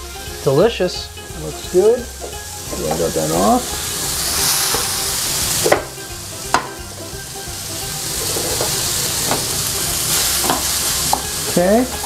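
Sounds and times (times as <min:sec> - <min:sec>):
zucchini sizzling in frying pan: 0:00.0 - 0:12.0
wooden spoon knocking on pan: 0:02.2 - 0:03.5, 0:05.6 - 0:07.1, 0:08.1 - 0:12.0.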